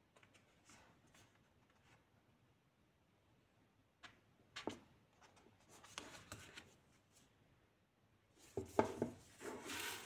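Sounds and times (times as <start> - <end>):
book pages and cover rustling: 8.4 - 10.0.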